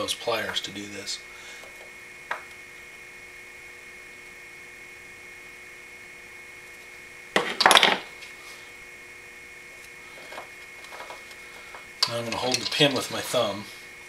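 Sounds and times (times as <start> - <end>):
faint electrical hum: 0.0 - 14.0
metal tools clattering on workbench: 7.4 - 8.0, 12.0 - 12.8.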